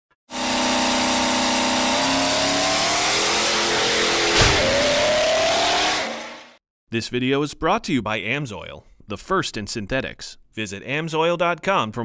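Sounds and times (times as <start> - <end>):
engine revving: 0.3 - 6.6
rising whine: 0.4 - 6.6
sharp hit: 2.7 - 6.4.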